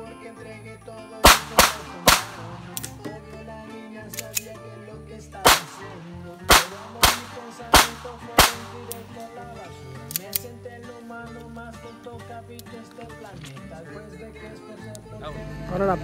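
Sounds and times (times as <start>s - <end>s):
background music: 0.0s - 16.0s
pistol shots: 1.2s - 3.0s, 5.4s - 9.3s.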